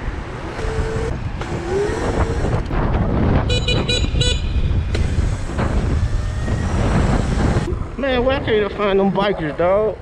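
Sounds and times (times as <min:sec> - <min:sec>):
road noise: 0:00.0 - 0:10.0
wind rush on microphone: 0:00.1 - 0:09.3
horn beeps: 0:03.5 - 0:04.6.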